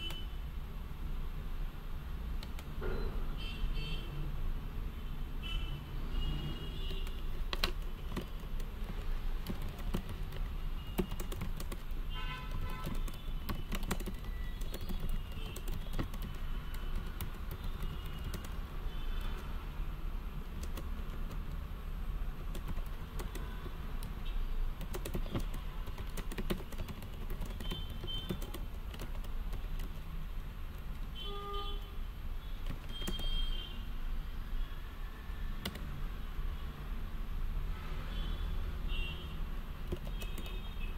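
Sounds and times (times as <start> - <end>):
keyboard key clicks: 2.4 - 2.8, 6.8 - 19.5, 20.4 - 21.6, 22.4 - 24.2, 24.8 - 30.1, 30.7 - 31.2, 32.6 - 33.4, 35.6 - 35.9, 39.8 - 40.6.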